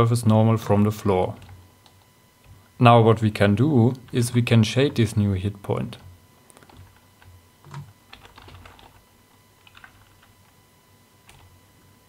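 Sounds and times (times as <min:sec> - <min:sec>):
computer keyboard keystrokes: 0:06.5 - 0:09.0, 0:09.6 - 0:10.5, 0:11.3 - 0:11.5.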